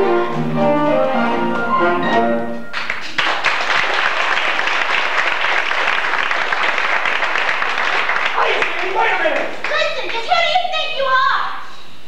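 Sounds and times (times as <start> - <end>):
band music with brass: 0.0 - 2.9
audience applauding: 2.7 - 10.6.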